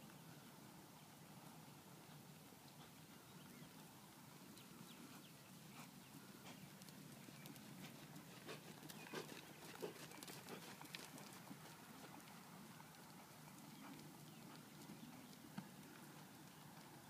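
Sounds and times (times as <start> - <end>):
horse hoofbeats on dirt: 4.4 - 17.0.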